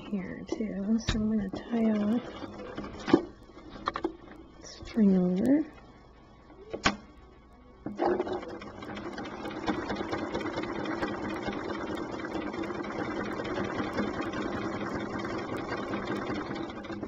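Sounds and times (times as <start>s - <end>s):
sewing machine stitching: 1.7s - 3.2s, 7.9s - 17.0s.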